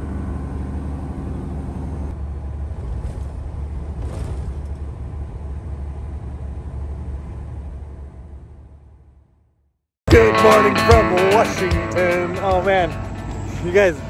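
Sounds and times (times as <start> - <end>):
truck engine and tyres rumbling: 0.0 - 9.4, 11.8 - 14.0
background music: 10.1 - 14.0.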